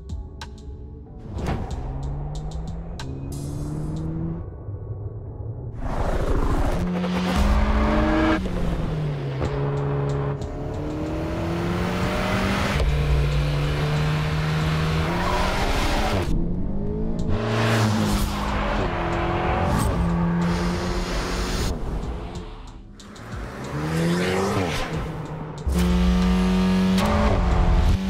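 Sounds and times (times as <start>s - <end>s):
car engine revving hard: 23.3s - 25.1s, 25.7s - 28.0s.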